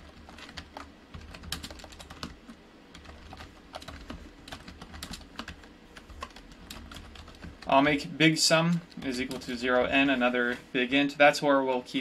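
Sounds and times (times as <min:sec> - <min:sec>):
computer keyboard typing: 0:00.0 - 0:07.8.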